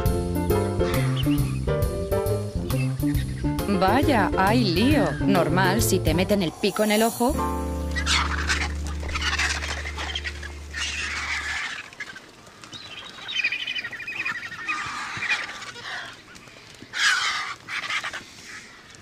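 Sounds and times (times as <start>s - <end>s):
vultures calling harshly: 0.0s - 6.9s, 7.7s - 19.0s
low music drone: 0.0s - 11.6s.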